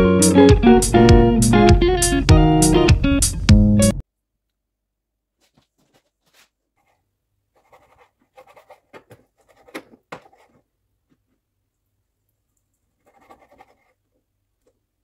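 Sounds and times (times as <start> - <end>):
knife tapping and scraping board: 7.6 - 10.6.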